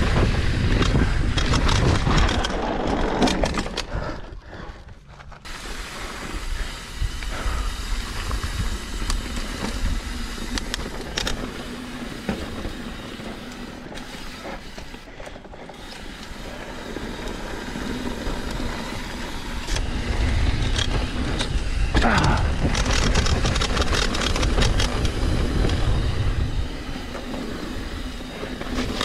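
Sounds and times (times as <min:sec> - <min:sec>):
wind on microphone: 0:00.0 - 0:03.2, 0:18.0 - 0:29.0
bike rattling over bumps: 0:00.0 - 0:29.0
tyres on dirt and stones: 0:00.0 - 0:29.0.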